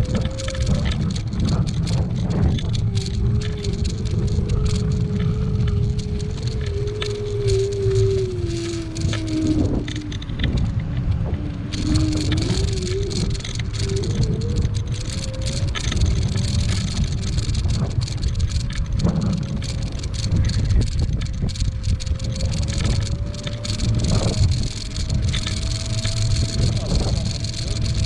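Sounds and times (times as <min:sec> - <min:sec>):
tyres rumbling on asphalt: 0:00.0 - 0:28.0
electric motor whine: 0:20.2 - 0:28.0.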